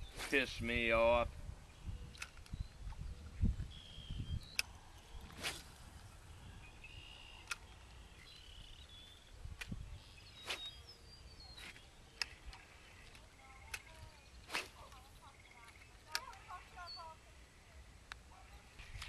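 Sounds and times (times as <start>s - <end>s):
birds chirping: 0.0s - 19.0s
sharp clicks: 2.1s - 2.6s, 4.5s - 4.8s, 7.0s - 8.0s, 9.6s - 9.8s, 11.6s - 16.5s.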